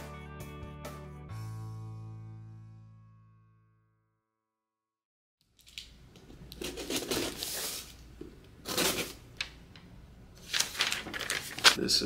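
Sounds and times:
packing tape tearing: 0:06.5 - 0:08.0, 0:08.6 - 0:09.2
cardboard rustling: 0:10.4 - 0:11.8.

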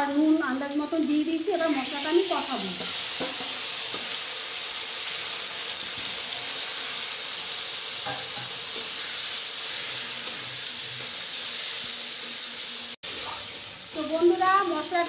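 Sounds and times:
food sizzling in hot oil: 0:00.0 - 0:15.0
metal spatula stirring: 0:08.0 - 0:12.3, 0:13.0 - 0:15.0.

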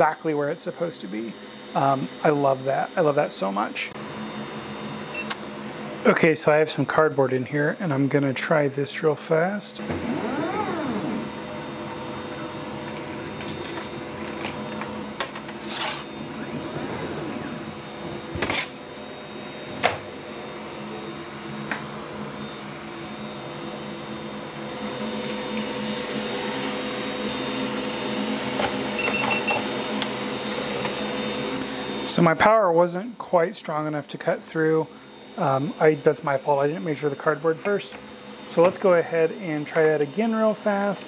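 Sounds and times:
air pump humming: 0:00.0 - 0:32.9
stepper motors whining: 0:09.8 - 0:11.6, 0:12.2 - 0:18.6.

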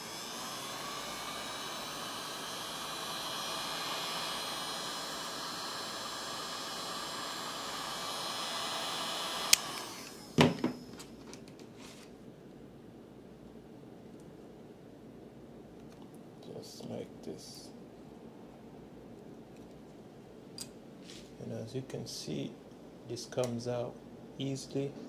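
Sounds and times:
heat gun blowing with whine: 0:00.0 - 0:11.3.

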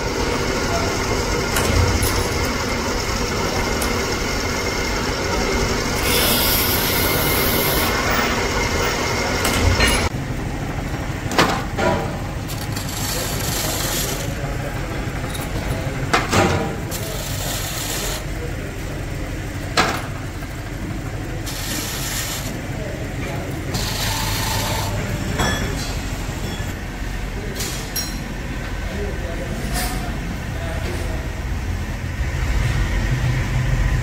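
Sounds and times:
grinding wheels on steel: 0:00.0 - 0:10.2, 0:12.0 - 0:16.2, 0:16.8 - 0:19.5, 0:20.1 - 0:26.8.

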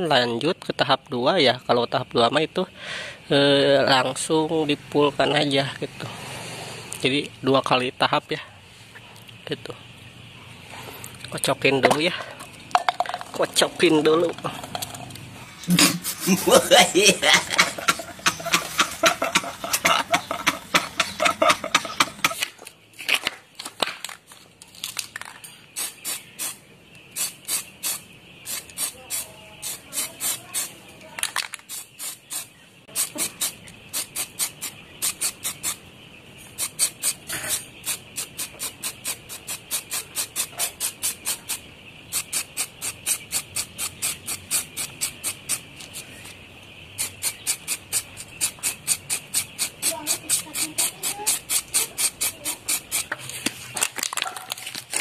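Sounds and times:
men laughing: 0:14.4 - 0:22.4
aerosol spray can hissing: 0:15.5 - 0:22.4, 0:25.8 - 0:26.6, 0:27.2 - 0:30.7, 0:31.7 - 0:35.8, 0:36.6 - 0:45.6, 0:47.0 - 0:53.1.

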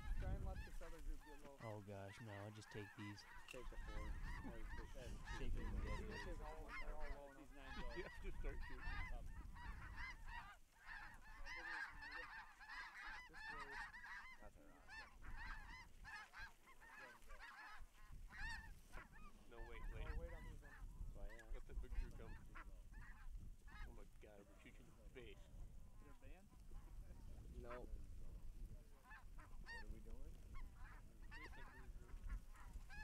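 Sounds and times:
wind rumble on microphone: 0:00.0 - 0:01.4, 0:03.6 - 0:12.1, 0:17.7 - 0:24.1, 0:24.8 - 0:33.0
geese honking: 0:00.0 - 0:28.0, 0:28.9 - 0:33.0.

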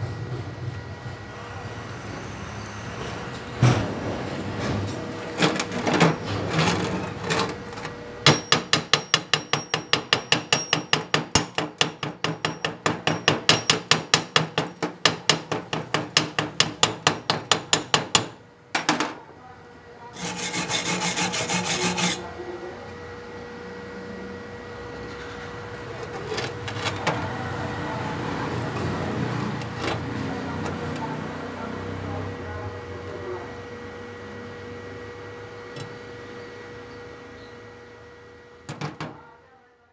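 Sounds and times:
hand tool striking metal: 0:08.2 - 0:18.2
scrubbing on metal: 0:20.2 - 0:22.2.

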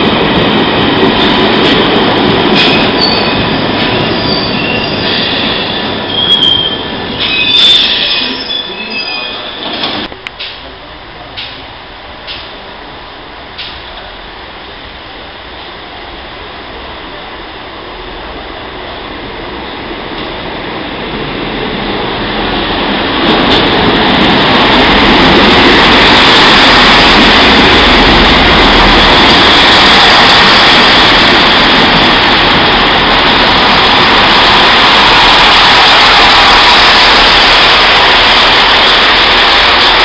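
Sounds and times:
diesel train engines: 0:00.0 - 0:40.0
train wheels rushing on rails: 0:00.0 - 0:40.0.

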